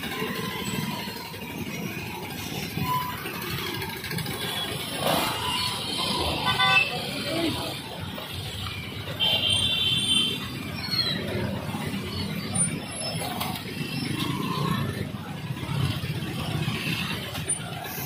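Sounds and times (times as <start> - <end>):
people's voices: 0.0 - 9.3
motorcycle and rickshaw engines: 0.0 - 18.0.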